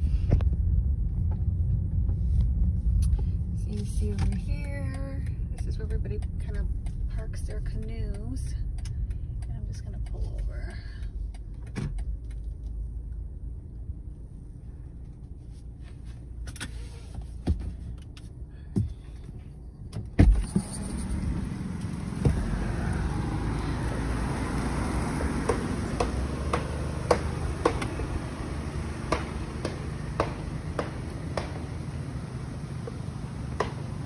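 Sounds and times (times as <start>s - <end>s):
open-air noise: 0.0s - 34.0s
clicks inside car: 4.0s - 12.8s.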